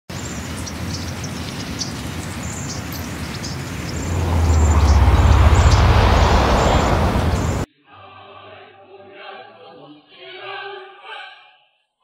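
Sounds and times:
birds chirping: 0:00.1 - 0:07.7
deep rumble and hiss: 0:00.1 - 0:07.7
steady low rumble: 0:03.7 - 0:07.7.

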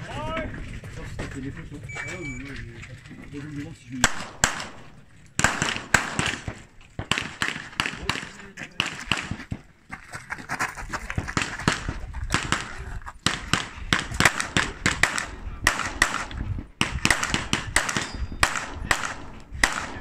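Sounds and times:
rapid pistol shots: 0:04.0 - 0:09.7, 0:11.3 - 0:20.0.

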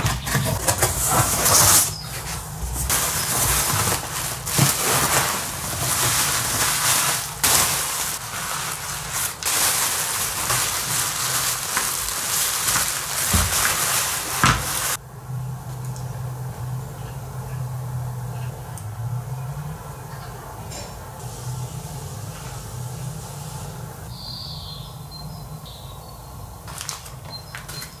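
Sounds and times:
packaging rustling and crinkling: 0:00.0 - 0:15.0, 0:26.7 - 0:28.0.

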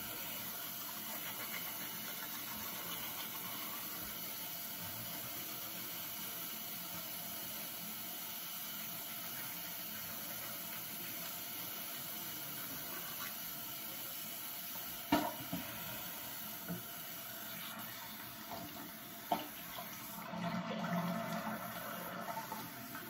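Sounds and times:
tap running into sink: 0:15.0 - 0:15.7, 0:18.4 - 0:21.6.

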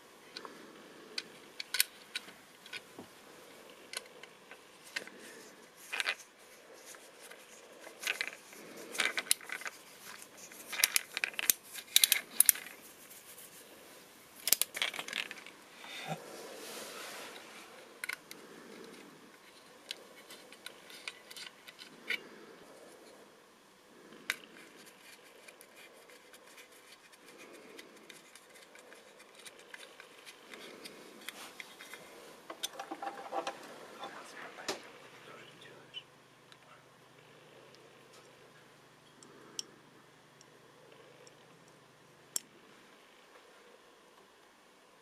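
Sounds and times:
small parts clicking and tapping: 0:00.3 - 0:03.0, 0:05.8 - 0:12.8, 0:14.4 - 0:15.6, 0:18.0 - 0:22.2, 0:24.3 - 0:33.7, 0:39.0 - 0:39.8.

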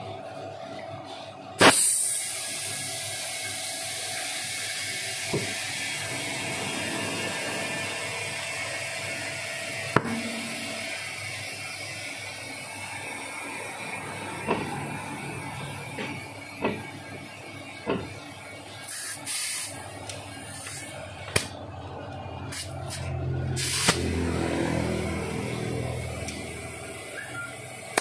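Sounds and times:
tyre valve hiss: 0:01.6 - 0:06.3, 0:18.8 - 0:19.8, 0:23.6 - 0:24.0
low hum: 0:06.0 - 0:17.3.

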